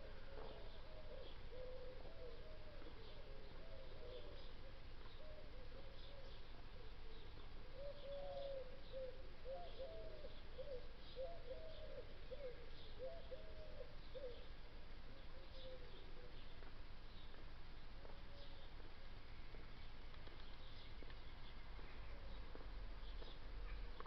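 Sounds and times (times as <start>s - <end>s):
pigeon cooing: 0.0s - 14.5s
small birds chirping: 0.3s - 24.0s.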